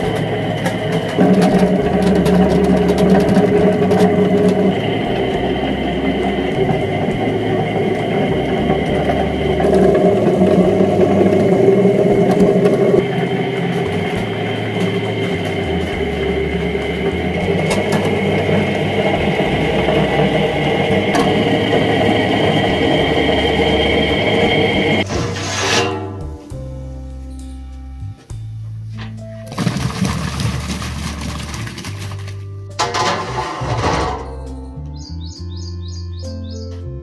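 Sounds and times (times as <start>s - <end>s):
peeling machine motor whirring: 0.0s - 25.6s
potatoes churning in a drum: 0.0s - 26.0s, 29.1s - 34.5s.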